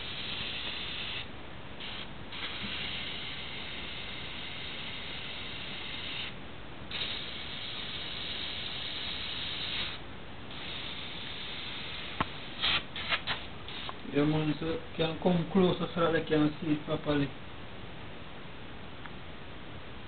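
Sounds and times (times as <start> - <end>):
airbrush hissing: 0.0 - 14.0.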